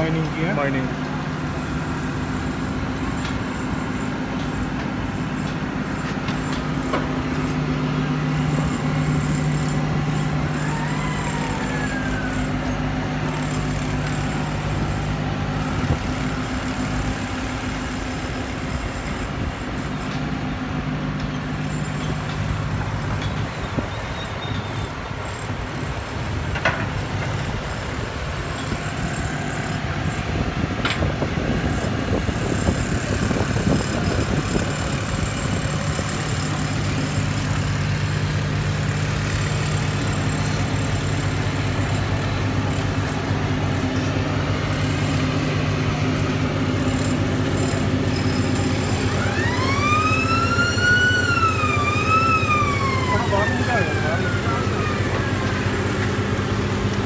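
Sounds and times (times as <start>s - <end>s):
heavy machinery engines droning: 0.0s - 57.0s
siren wailing: 10.0s - 13.0s, 48.4s - 57.0s.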